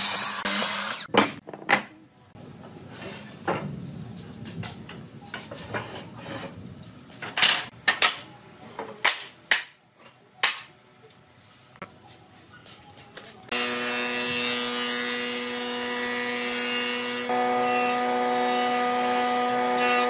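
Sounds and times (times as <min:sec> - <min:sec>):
wooden boards knocking and clattering: 0:01.1 - 0:02.0, 0:07.2 - 0:09.8.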